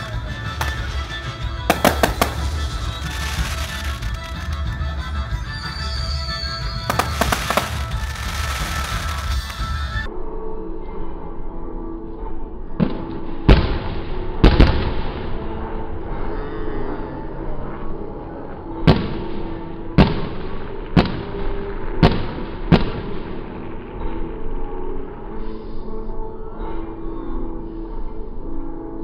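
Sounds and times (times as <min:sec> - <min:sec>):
firework shells bursting: 0:00.5 - 0:04.7, 0:06.8 - 0:09.7.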